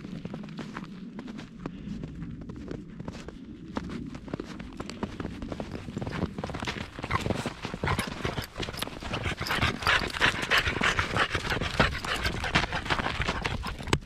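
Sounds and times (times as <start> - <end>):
dog snuffling and breathing: 5.8 - 14.0.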